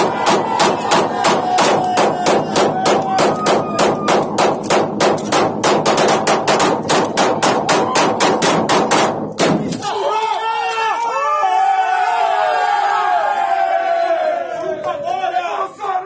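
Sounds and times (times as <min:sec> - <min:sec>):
rapid handgun fire: 0:00.0 - 0:09.8.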